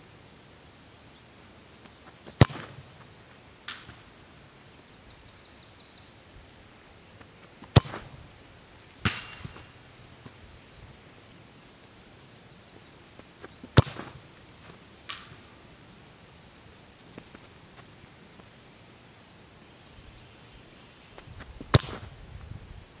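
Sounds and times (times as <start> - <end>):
soccer ball kicked hard: 2.4 - 2.9, 7.6 - 8.2, 9.0 - 9.6, 13.7 - 14.2, 21.6 - 22.1
ball clanging on metal goal frame: 9.1 - 9.7.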